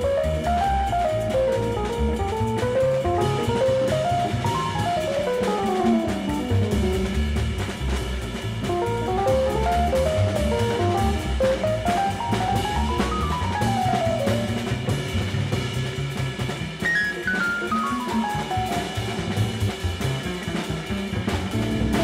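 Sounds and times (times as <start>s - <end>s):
electric piano runs: 0.0s - 7.2s, 8.8s - 14.7s, 16.9s - 19.6s
drum kit: 0.0s - 22.0s
upright bass: 0.0s - 22.0s.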